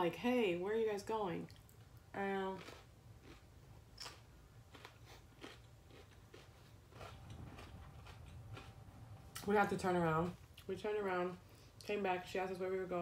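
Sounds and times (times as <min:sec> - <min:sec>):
person chewing food: 0:01.5 - 0:09.4.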